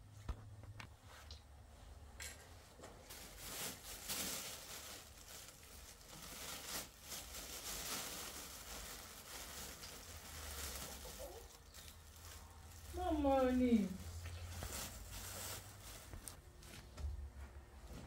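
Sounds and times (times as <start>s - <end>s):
plastic bags crinkling: 3.0s - 16.4s.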